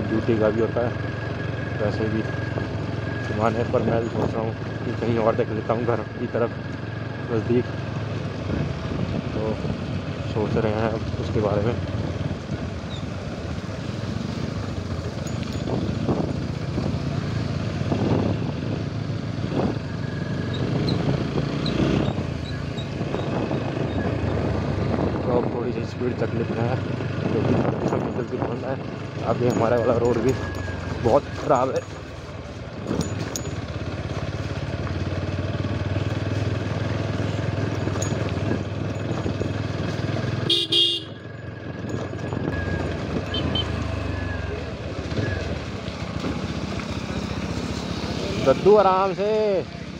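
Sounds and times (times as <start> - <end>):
motorcycle engine running: 0.0 - 49.9
horn toots: 40.4 - 41.2, 43.2 - 43.9.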